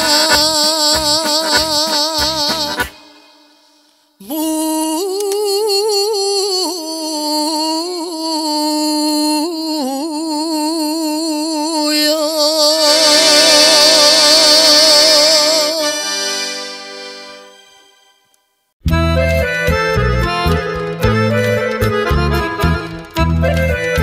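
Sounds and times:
woman singing into a microphone: 0:00.0 - 0:03.1, 0:04.2 - 0:16.0
instrumental accompaniment: 0:00.0 - 0:03.8, 0:12.8 - 0:24.0.

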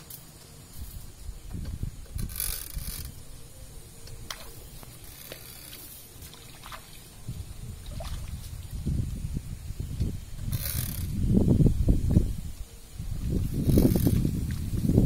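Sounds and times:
sprayer clicks and creaks: 0:01.5 - 0:03.2, 0:04.0 - 0:06.0, 0:10.4 - 0:11.3, 0:13.4 - 0:14.5
footsteps sloshing through water: 0:04.3 - 0:08.8.

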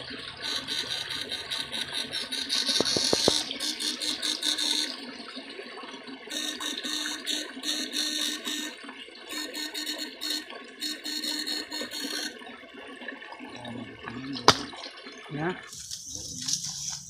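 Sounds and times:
water sloshing and splashing: 0:00.0 - 0:07.4, 0:12.2 - 0:17.0.

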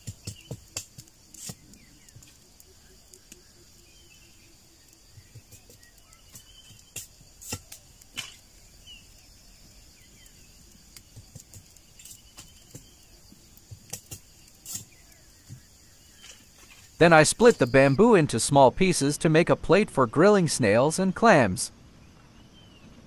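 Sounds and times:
bamboo cracking and tapping: 0:00.0 - 0:03.5, 0:04.8 - 0:08.5, 0:10.0 - 0:17.0
faint high hiss: 0:00.0 - 0:19.5.

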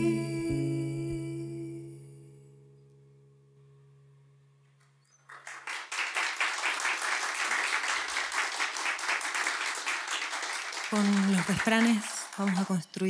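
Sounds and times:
audience applause: 0:05.3 - 0:13.0.

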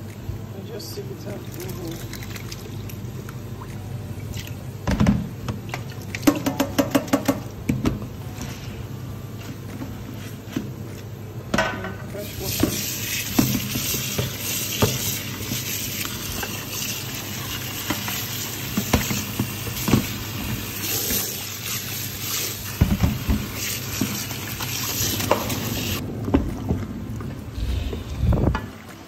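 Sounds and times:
tap water running: 0:12.4 - 0:26.0.

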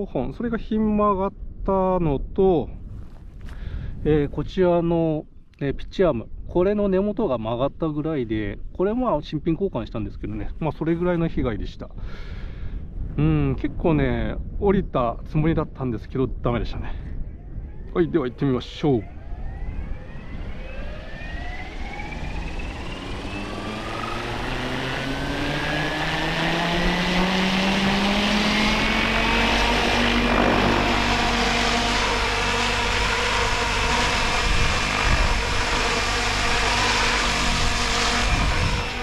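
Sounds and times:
model helicopter motor whine: 0:18.7 - 0:39.0.

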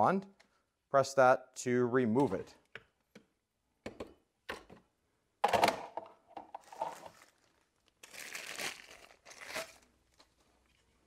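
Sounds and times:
plastic bag crinkling: 0:06.6 - 0:10.4.

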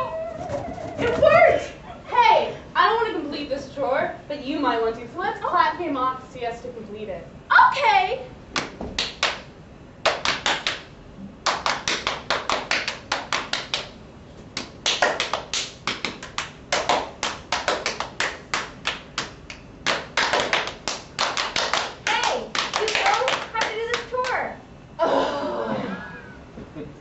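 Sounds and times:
hand clapping: 0:08.6 - 0:14.0, 0:14.6 - 0:24.4.

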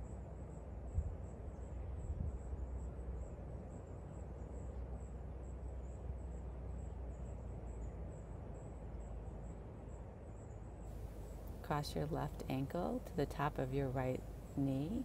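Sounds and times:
steady low rumble: 0:05.4 - 0:15.0.

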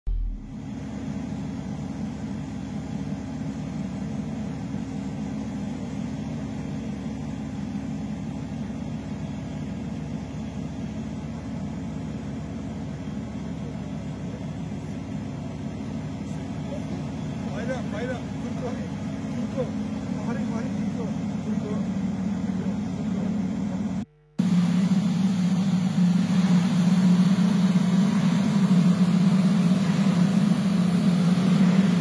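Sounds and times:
boat engine drone: 0:00.1 - 0:32.0.

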